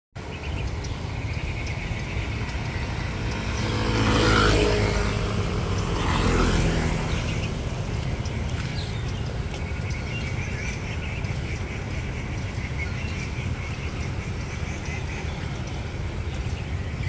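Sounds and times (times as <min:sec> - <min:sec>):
steady low rumble: 0:00.2 - 0:04.1, 0:04.7 - 0:17.0
motor scooters passing: 0:00.2 - 0:17.0.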